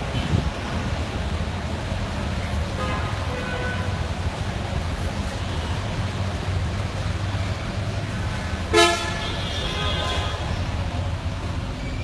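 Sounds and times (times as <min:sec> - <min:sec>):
low rumble of traffic: 0:00.0 - 0:12.0
fainter car horn: 0:08.7 - 0:10.2
car horn toot: 0:08.7 - 0:10.4.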